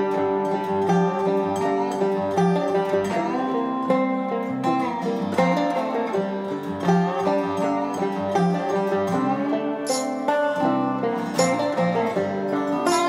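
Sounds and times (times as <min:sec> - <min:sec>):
plucked strings melody: 0:00.0 - 0:13.0.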